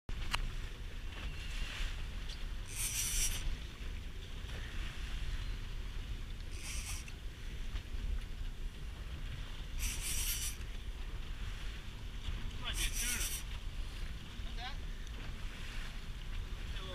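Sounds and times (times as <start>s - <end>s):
wind rumble on microphone: 0.1s - 16.9s
short bursts of high hiss: 2.7s - 3.5s, 6.5s - 7.1s, 9.8s - 10.6s, 12.8s - 13.5s.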